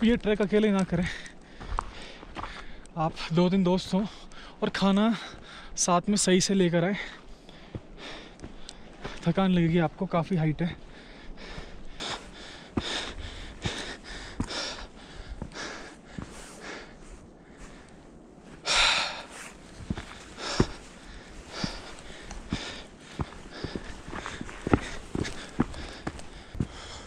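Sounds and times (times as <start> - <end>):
footsteps on stones: 0.0 - 5.5, 7.1 - 17.9, 18.6 - 27.0
person breathing hard: 1.1 - 2.9, 4.1 - 4.6, 7.0 - 9.2, 10.8 - 18.0, 18.6 - 27.0.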